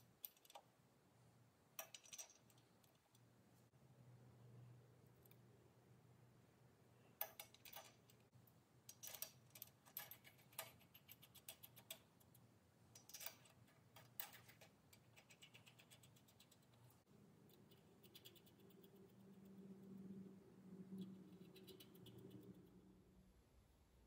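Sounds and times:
small metal clicks and taps: 0:00.2 - 0:00.7, 0:07.2 - 0:08.3, 0:08.9 - 0:16.8.

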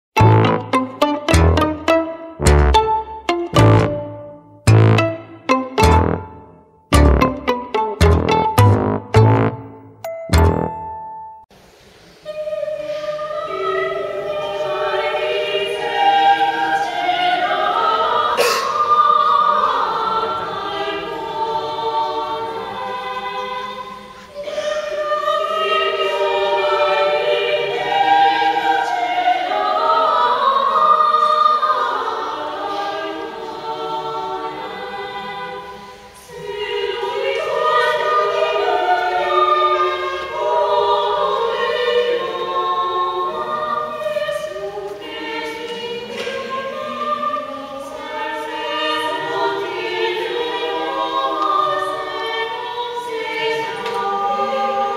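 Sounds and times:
women's choir singing a cappella: 0:12.2 - 0:54.9
singers breathing: 0:24.0 - 0:24.9.

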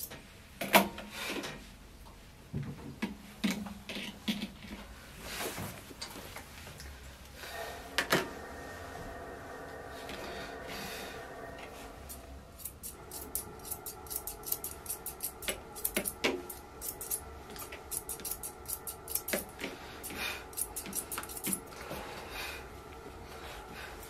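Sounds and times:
steady background hum: 0:00.0 - 0:24.0
grooming shears snipping: 0:12.1 - 0:19.5.

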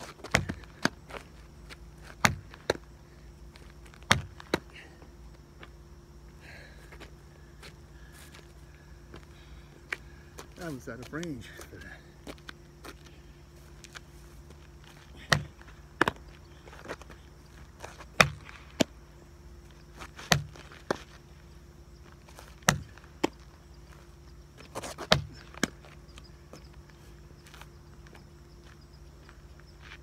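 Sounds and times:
baseball hitting asphalt: 0:00.0 - 0:03.0, 0:03.9 - 0:04.8, 0:15.1 - 0:16.4, 0:17.8 - 0:19.0, 0:20.0 - 0:21.2, 0:22.4 - 0:23.5, 0:24.6 - 0:26.0.

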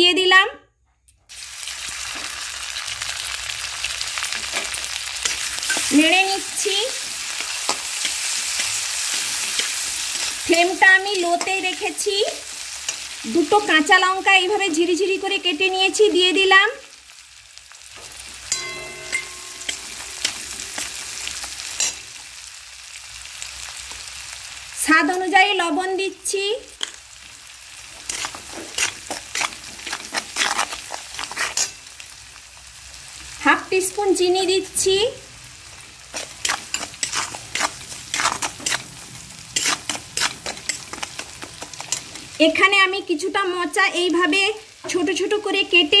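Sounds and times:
chillies sizzling in oil: 0:01.3 - 0:46.0
metal spatula scraping pan: 0:04.4 - 0:11.8, 0:18.0 - 0:22.1, 0:27.9 - 0:31.9, 0:36.1 - 0:42.4
short metallic ring: 0:18.5 - 0:20.0.

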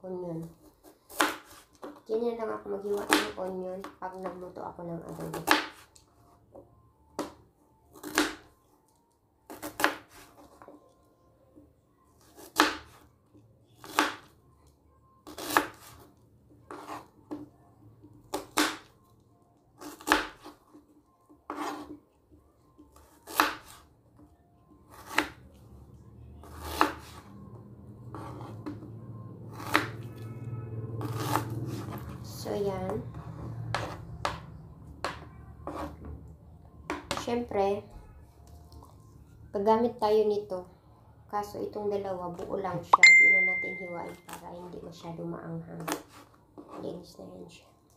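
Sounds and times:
knife chopping on cutting board: 0:18.3 - 0:18.9, 0:24.9 - 0:25.4, 0:26.6 - 0:27.2.

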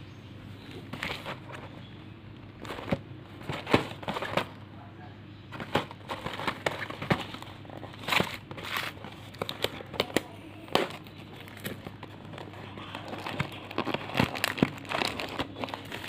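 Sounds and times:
low steady hum: 0:00.0 - 0:16.0
cardboard box tapping and knocking: 0:02.6 - 0:04.6.

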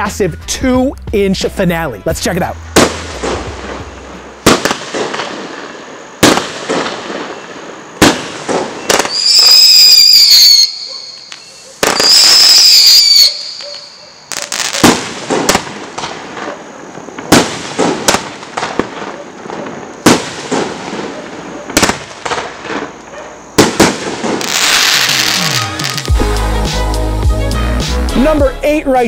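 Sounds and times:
firework bangs: 0:02.7 - 0:26.2
firework pops: 0:02.8 - 0:05.4, 0:06.2 - 0:07.4, 0:08.0 - 0:09.6, 0:14.3 - 0:26.2
high whistling firework: 0:02.8 - 0:26.9.

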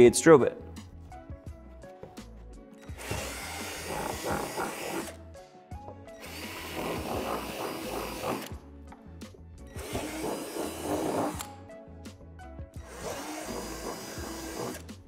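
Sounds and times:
cordless drill boring plastic: 0:02.9 - 0:05.2, 0:06.2 - 0:08.5, 0:09.8 - 0:11.5, 0:12.9 - 0:14.9.

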